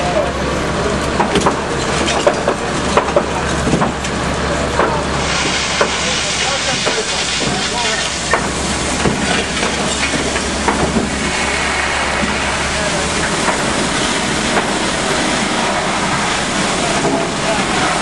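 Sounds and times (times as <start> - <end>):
fire engine hum: 0.0 - 18.0
fire hose water rushing: 0.0 - 18.0
sharp cracks: 10.4 - 15.2.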